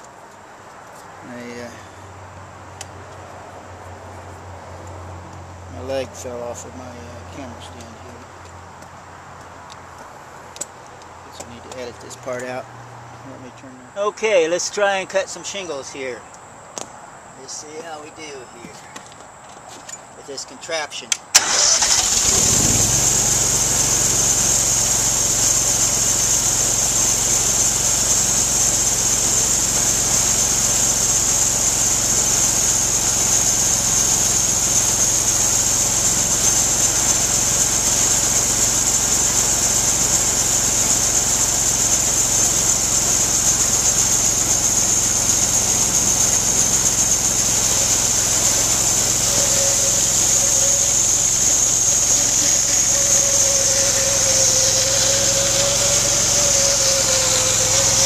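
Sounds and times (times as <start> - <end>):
sawmill engine running: 21.4 - 58.0
high-pitched whine: 22.3 - 58.0.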